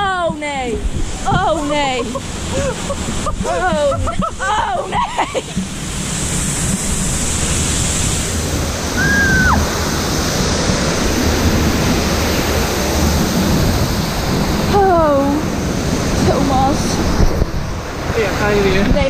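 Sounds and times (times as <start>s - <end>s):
rushing and splashing water: 0.0s - 19.0s
high squeal: 8.9s - 9.8s.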